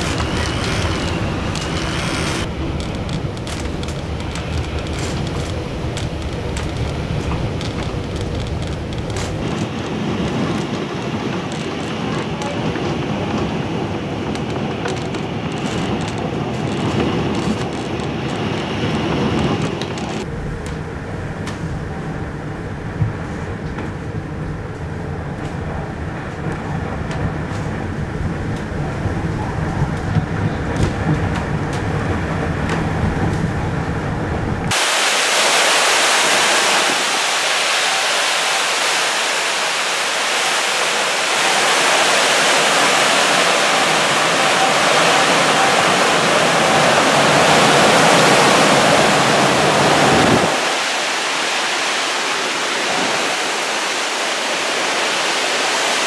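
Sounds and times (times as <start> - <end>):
rushing floodwater: 0.0 - 20.3, 34.6 - 56.0
hurricane wind: 0.0 - 56.0
rain: 0.0 - 56.0.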